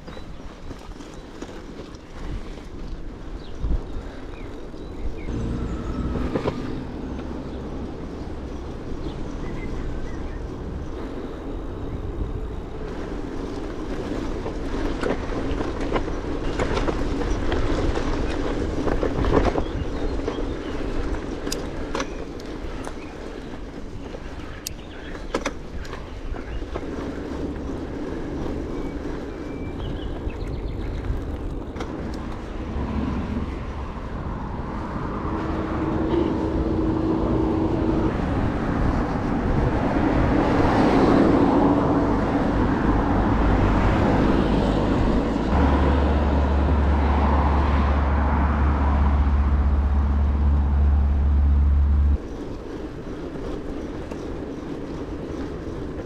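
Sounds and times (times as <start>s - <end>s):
bicycle clicks and rattles: 0.0s - 4.9s, 12.4s - 33.7s, 52.2s - 56.0s
bicycle tyres rumbling: 0.0s - 56.0s
wind: 0.0s - 56.0s.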